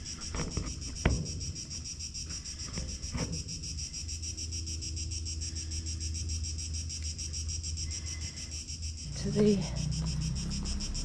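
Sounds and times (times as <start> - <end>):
crickets chirping: 0.0 - 11.0
low rumble: 9.2 - 11.0.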